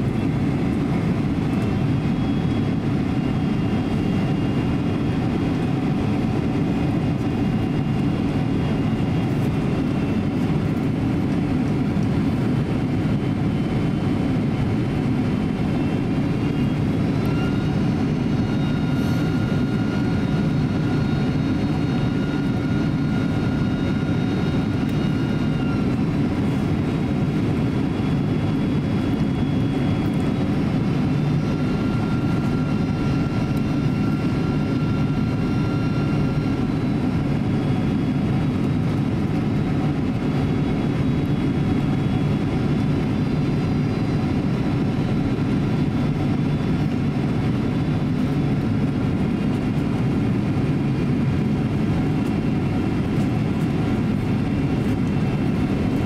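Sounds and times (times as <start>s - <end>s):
airflow and jet engines rumbling: 0.0s - 56.0s
high whining engine tones: 12.0s - 49.4s.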